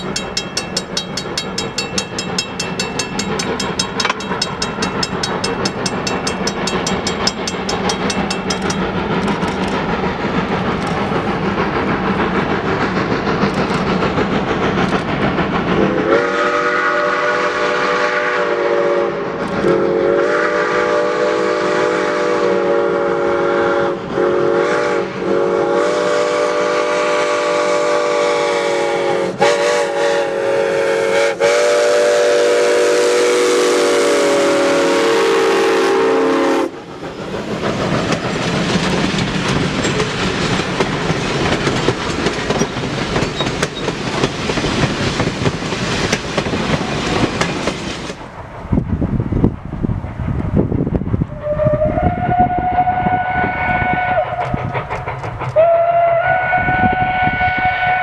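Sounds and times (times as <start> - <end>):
steam locomotive chuffing: 0.0 - 58.0
steam whistle blowing: 15.9 - 36.8, 51.3 - 54.6, 55.6 - 58.0.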